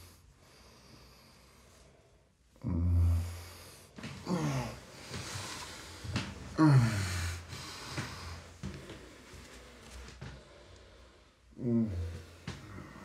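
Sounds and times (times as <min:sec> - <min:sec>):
heavy breaths and gasps: 0:00.0 - 0:13.0
man groaning: 0:04.2 - 0:04.8, 0:06.6 - 0:07.4, 0:11.6 - 0:12.3.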